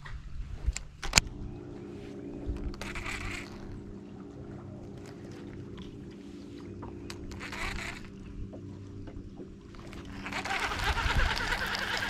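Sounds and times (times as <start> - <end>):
wind noise on microphone: 0.0 - 12.0
electric trolling motor humming: 1.1 - 12.0.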